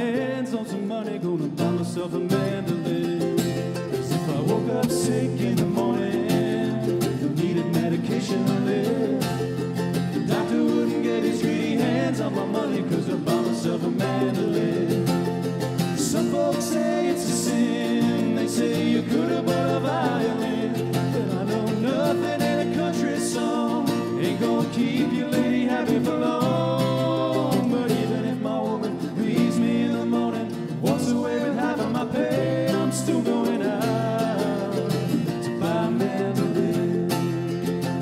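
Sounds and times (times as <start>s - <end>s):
mandolin picking: 0.0s - 38.0s.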